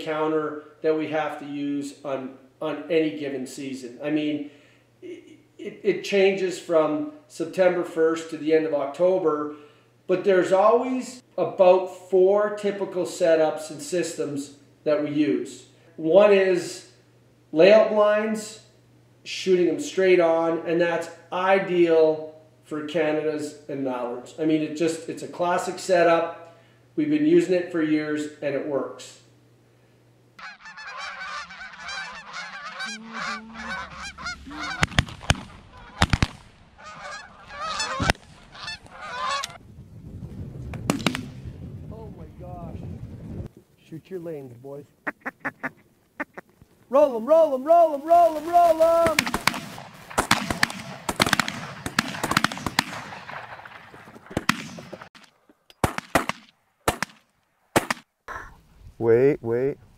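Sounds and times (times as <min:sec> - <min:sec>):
geese honking: 0:30.4 - 0:39.6, 0:45.0 - 0:49.2
shotgun shots: 0:34.8 - 0:36.7, 0:40.9 - 0:41.4, 0:49.0 - 0:57.2, 0:57.8 - 0:58.0.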